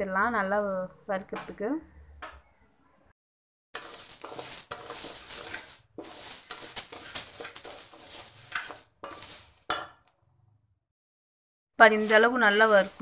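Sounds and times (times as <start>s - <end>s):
rice grains scraping in a pan: 3.8s - 10.0s, 11.8s - 13.0s.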